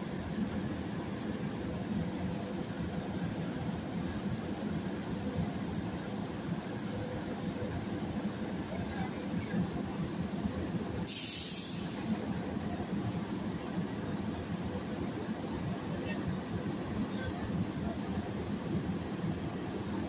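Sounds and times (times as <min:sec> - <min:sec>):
train equipment humming: 0:00.0 - 0:20.0
short sharp hiss: 0:11.1 - 0:12.2.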